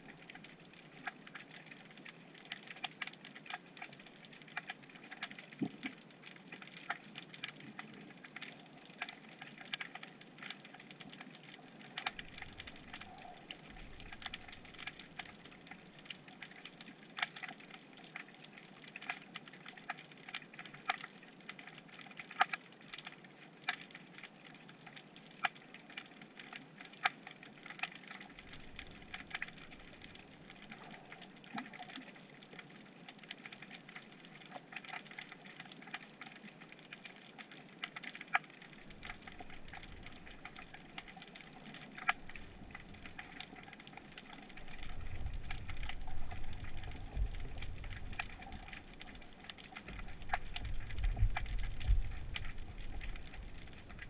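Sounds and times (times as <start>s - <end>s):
underwater sharp clicks: 11.9s - 16.2s, 37.8s - 54.0s.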